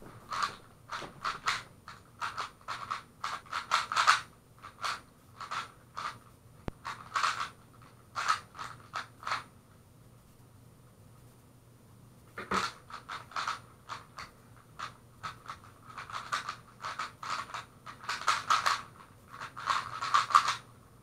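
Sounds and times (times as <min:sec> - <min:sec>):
plastic puzzle cube clicking: 0:14.8 - 0:20.6.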